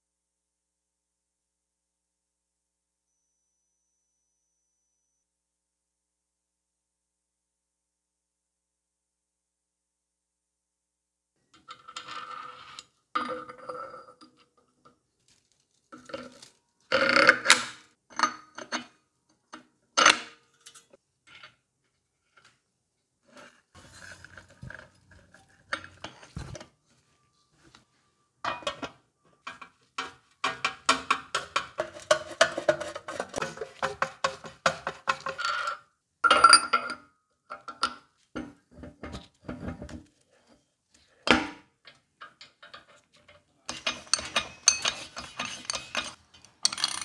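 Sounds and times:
metal tools clinking: 0:43.7 - 0:47.0.

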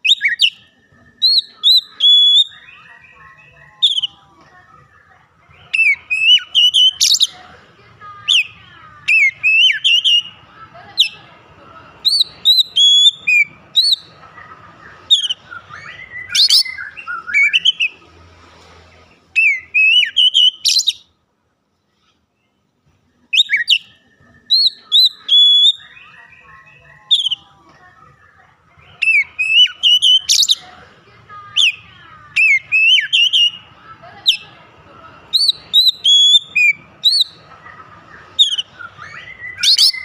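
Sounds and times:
bird singing whistles and chirps: 0:00.0 - 0:03.2, 0:03.8 - 0:04.2, 0:05.6 - 0:07.4, 0:09.1 - 0:10.4, 0:12.0 - 0:14.1, 0:15.0 - 0:18.0, 0:19.4 - 0:21.1, 0:23.3 - 0:27.5, 0:29.0 - 0:30.6, 0:32.4 - 0:33.7, 0:35.3 - 0:37.4, 0:38.4 - 0:40.0.

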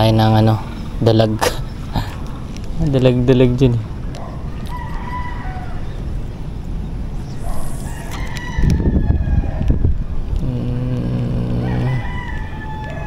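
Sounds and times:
rooster crowing: 0:04.5 - 0:06.0, 0:07.8 - 0:09.9, 0:11.6 - 0:13.0
low rumbling on microphone: 0:05.6 - 0:12.7.

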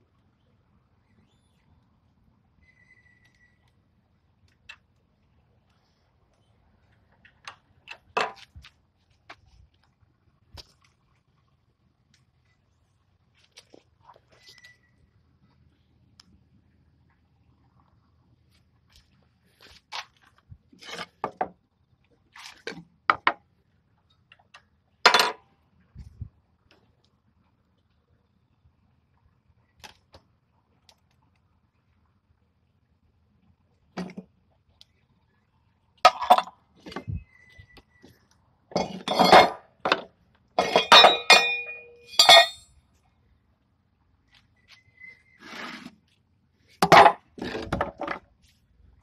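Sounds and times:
wooden blocks knocking and scraping: 0:06.9 - 0:09.5, 0:19.6 - 0:21.6, 0:22.4 - 0:23.5, 0:36.1 - 0:42.6, 0:46.7 - 0:48.5
metal clanks with ringing: 0:40.6 - 0:42.7.

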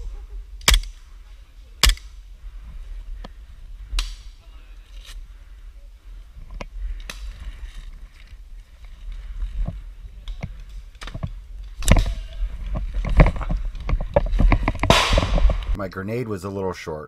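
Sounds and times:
low rumble of handling: 0:00.0 - 0:15.8.

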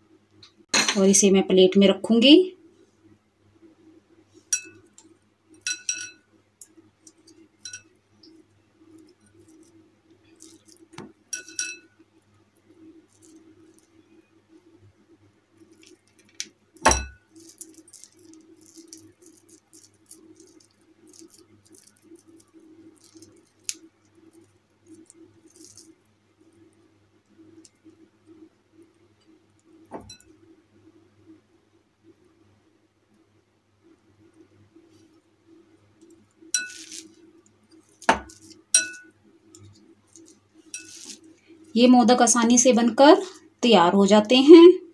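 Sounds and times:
low steady hum: 0:00.0 - 0:44.9
clinks on glass bowl: 0:04.6 - 0:04.9, 0:05.6 - 0:06.2, 0:07.6 - 0:07.9, 0:11.4 - 0:11.9, 0:16.8 - 0:17.2, 0:29.9 - 0:30.3, 0:38.1 - 0:39.1.

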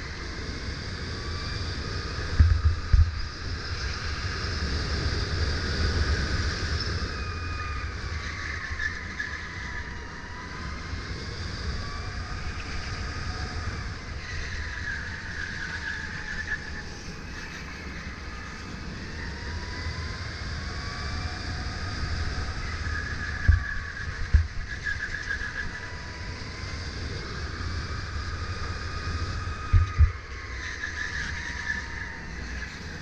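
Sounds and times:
tyre and wind rumble: 0:20.3 - 0:30.5.

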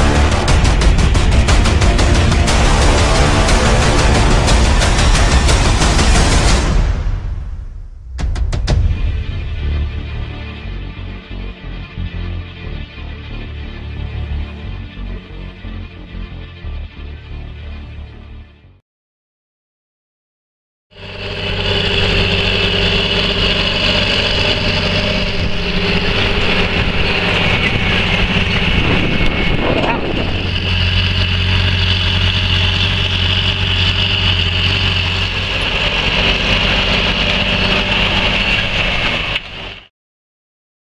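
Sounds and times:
tractor diesel engine running: 0:00.0 - 0:06.9, 0:20.9 - 0:39.9.

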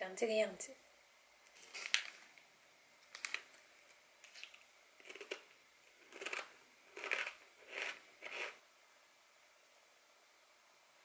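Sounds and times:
potato chips crunching: 0:01.6 - 0:02.3, 0:04.2 - 0:08.6.

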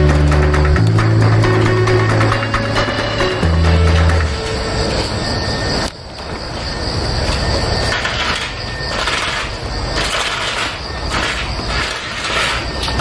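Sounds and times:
rushing background noise: 0:00.0 - 0:13.0
clay tiles clinking and scraping: 0:07.9 - 0:13.0.

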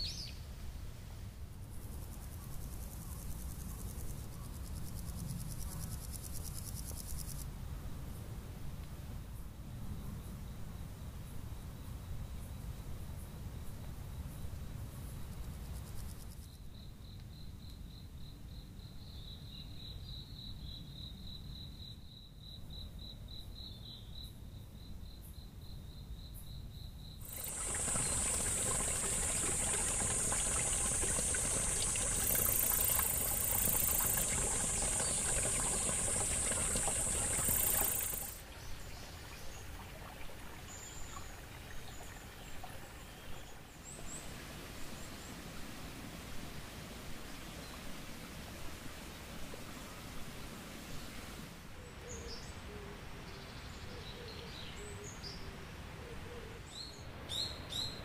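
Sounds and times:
high-pitched pulsing insect call: 0:25.9 - 0:40.0
shrill insect buzz: 0:37.0 - 0:38.4.

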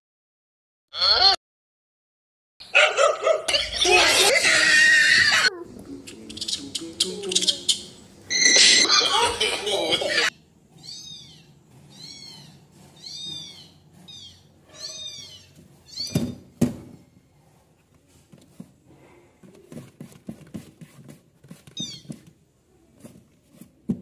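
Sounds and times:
cat mewing: 0:10.8 - 0:15.6.

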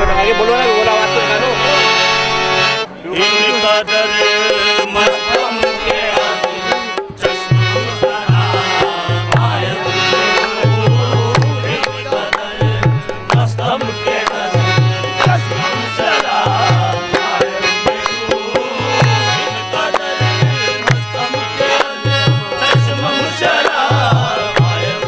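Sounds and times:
harmonium: 0:00.0 - 0:25.0.

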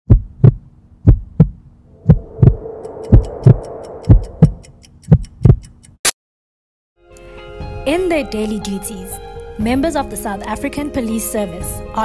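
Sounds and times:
hum: 0:00.1 - 0:05.2
heartbeat thumps: 0:00.1 - 0:05.7.

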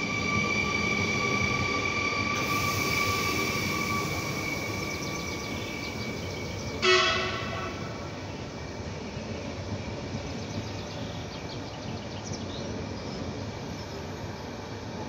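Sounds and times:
electric train whine and rumble: 0:00.0 - 0:15.0
train horn blast: 0:06.8 - 0:08.2.

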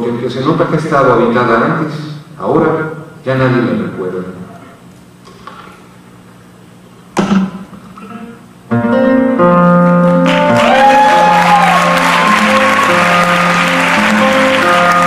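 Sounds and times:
nylon-string guitar picking: 0:07.2 - 0:10.5
audience applause: 0:10.2 - 0:15.0.

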